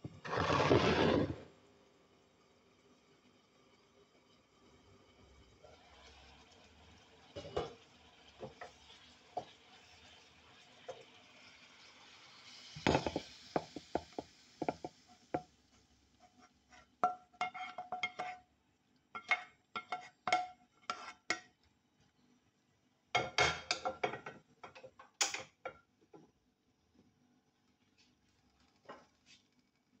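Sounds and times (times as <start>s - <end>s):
faint sizzle: 0.0s - 24.6s
wooden spatula scraping frying pan: 0.2s - 1.5s, 20.8s - 21.3s
pan clattering on burner grate: 12.9s - 14.9s.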